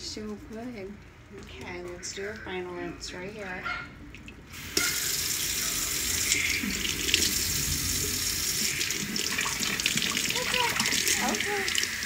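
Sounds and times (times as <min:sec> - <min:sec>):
faucet water running into sink: 0:04.6 - 0:12.0.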